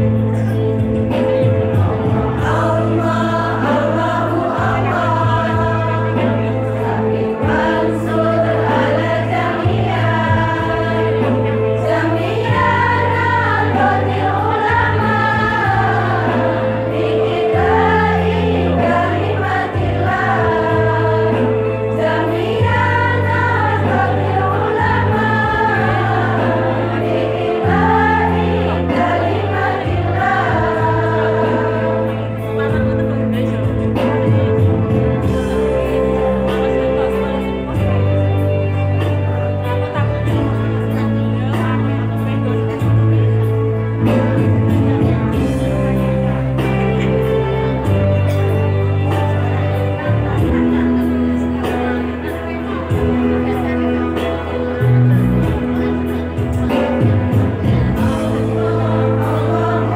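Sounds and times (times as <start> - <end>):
women's choir singing: 1.4 - 37.7, 56.9 - 59.9.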